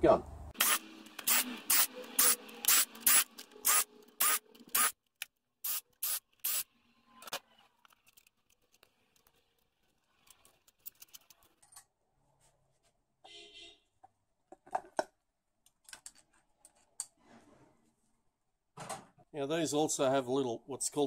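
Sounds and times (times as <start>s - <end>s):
power driver bursts: 0.6s - 4.9s
faint clicks of parts handled: 7.8s - 12.0s, 14.8s - 17.2s.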